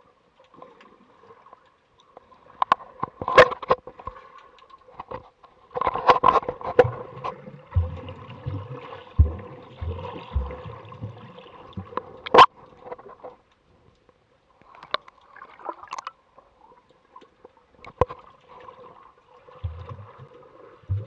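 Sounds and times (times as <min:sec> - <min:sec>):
water rushing and bubbling: 0:06.6 - 0:12.6, 0:18.3 - 0:21.0
dull low underwater thumps: 0:06.8 - 0:12.2, 0:19.6 - 0:21.0.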